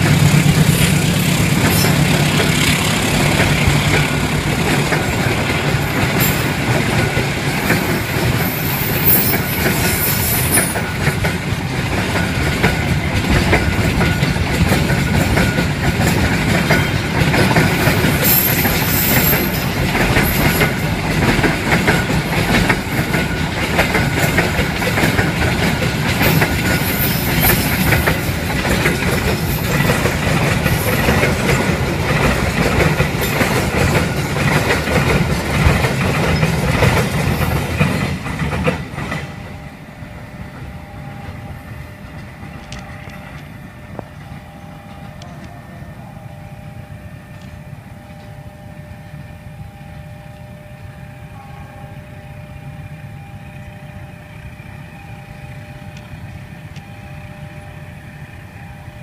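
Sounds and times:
freight train wagons rattling past: 0:00.0 - 0:59.0
faint steady tones: 0:39.3 - 0:59.0.

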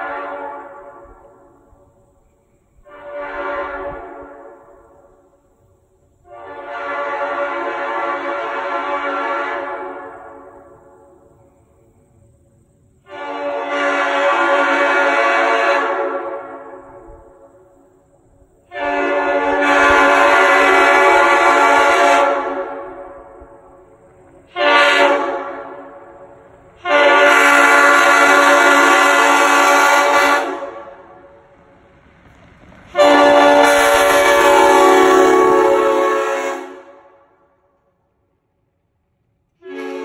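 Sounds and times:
air horn chord blasts: 0:18.7 - 0:22.9, 0:26.8 - 0:31.0, 0:33.0 - 0:37.1, 0:39.6 - 0:40.0.

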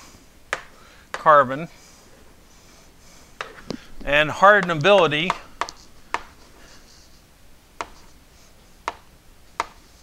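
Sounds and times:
chalk tapping and scratching on blackboard: 0:02.5 - 0:07.2, 0:07.8 - 0:10.0.

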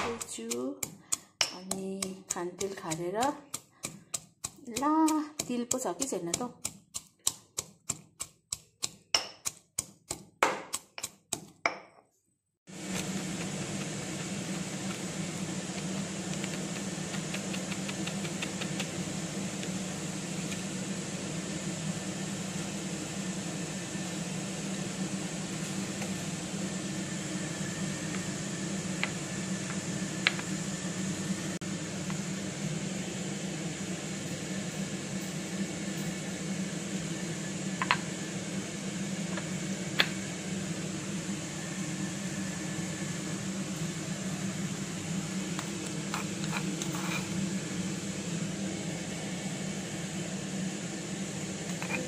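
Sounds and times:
kitchenware clicking on metal bowl: 0:00.0 - 0:11.8
appliance humming with hiss: 0:00.0 - 0:52.0.

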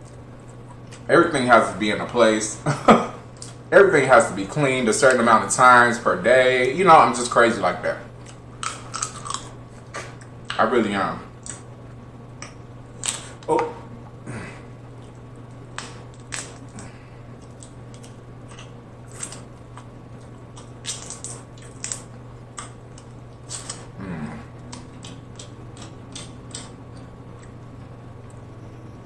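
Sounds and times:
steady low hum: 0:00.0 - 0:29.0
shellfish being peeled and eaten: 0:08.2 - 0:10.6, 0:12.4 - 0:14.2, 0:14.9 - 0:28.0.

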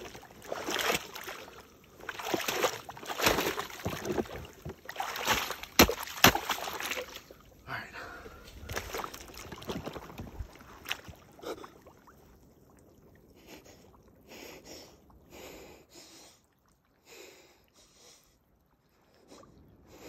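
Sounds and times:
ice water sloshing in a tub: 0:00.0 - 0:07.5, 0:08.4 - 0:11.7.

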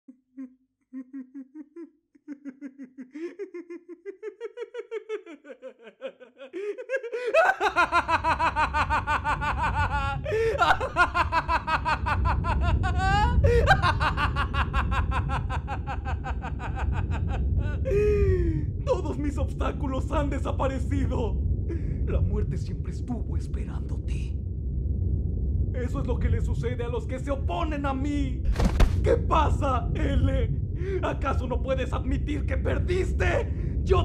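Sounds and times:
man laughing maniacally: 0:01.0 - 0:19.2
low rumble: 0:07.6 - 0:34.0.

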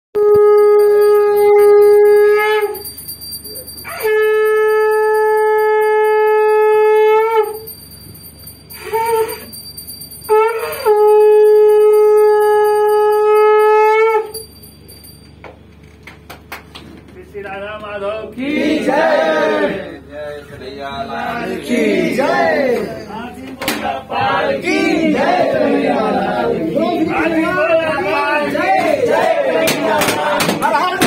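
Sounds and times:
conch shell blasts: 0:00.2 - 0:07.8, 0:10.2 - 0:14.6.

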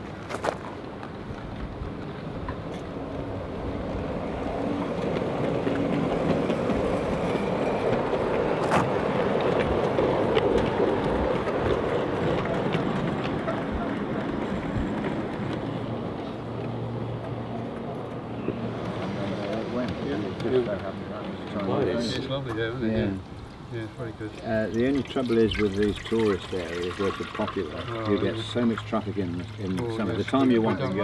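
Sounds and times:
model train wheels rumbling on rails: 0:00.8 - 0:16.6.

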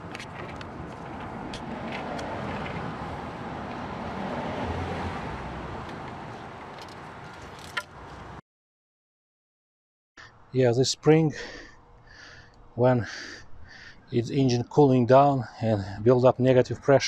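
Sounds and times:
road vehicle passing by: 0:00.0 - 0:08.4.

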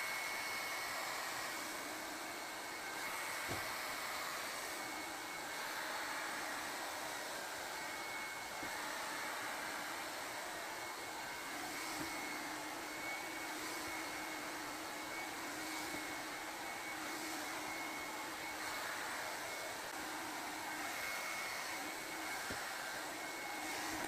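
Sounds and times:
hair dryer blowing air: 0:00.0 - 0:24.0.

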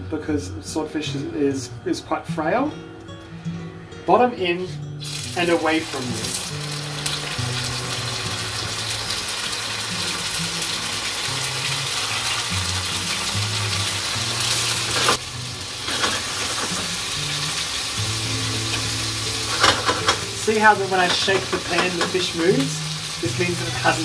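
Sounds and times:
fish frying in oil: 0:05.0 - 0:24.0.

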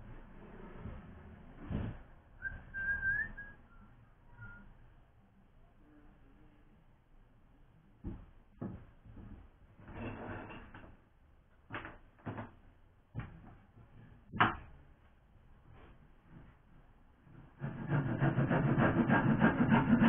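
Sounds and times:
wooden battens knocking on floor: 0:08.0 - 0:11.0, 0:11.7 - 0:12.6.

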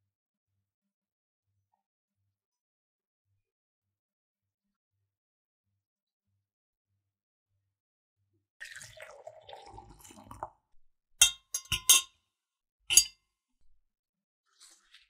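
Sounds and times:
water splashing in glass jug: 0:08.6 - 0:10.6, 0:11.2 - 0:12.1, 0:12.9 - 0:13.1
fork clinking against glass: 0:11.2 - 0:12.1, 0:12.9 - 0:13.2.

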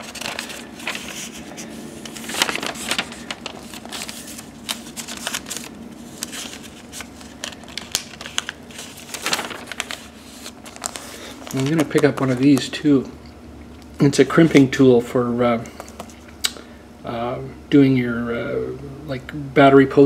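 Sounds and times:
paper pages rustling and flipping: 0:00.0 - 0:12.7.

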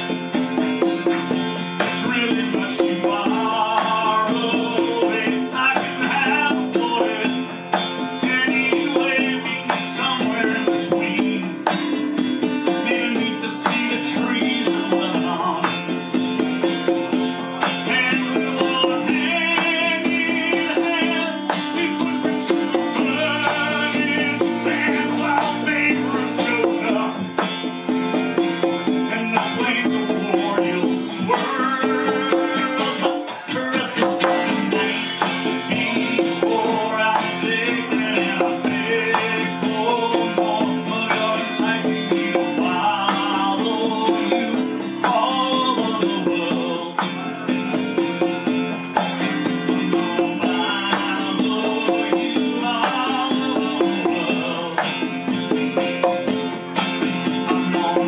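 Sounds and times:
acoustic guitar song playback: 0:00.0 - 0:58.0
conga drums: 0:00.0 - 0:58.0.

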